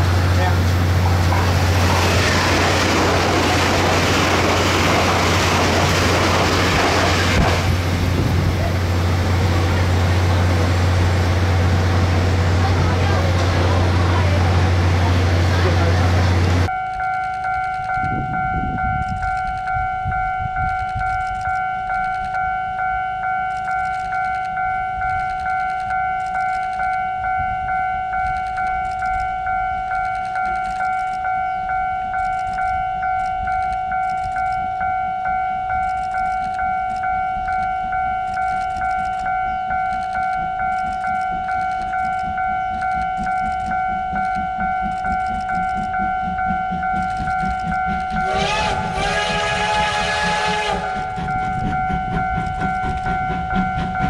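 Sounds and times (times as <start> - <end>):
level crossing warning bell ringing: 16.6 - 54.0.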